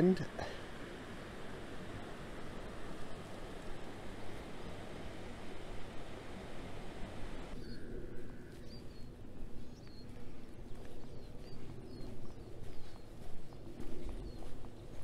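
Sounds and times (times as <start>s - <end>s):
small birds chirping: 6.7s - 15.0s.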